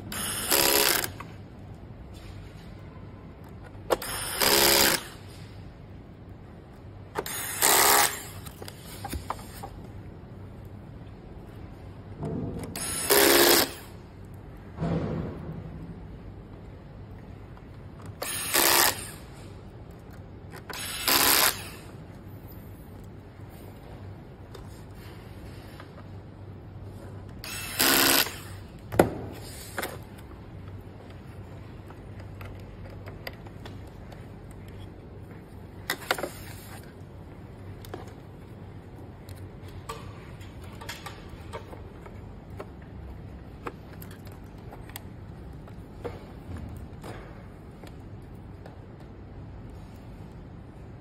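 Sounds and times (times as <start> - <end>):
clicks of parts being handled: 39.2 - 49.2.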